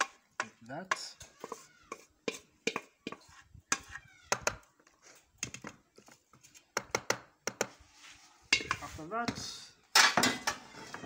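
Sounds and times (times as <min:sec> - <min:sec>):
utensils knocking metal pot: 0:02.3 - 0:03.2.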